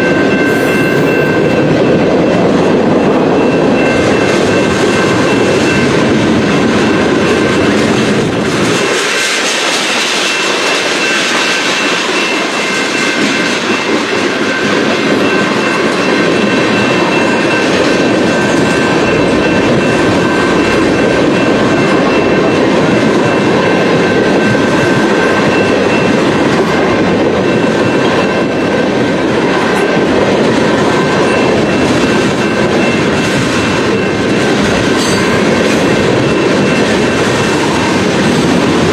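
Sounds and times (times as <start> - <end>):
train wheels rumbling on rails: 0.0 - 38.9.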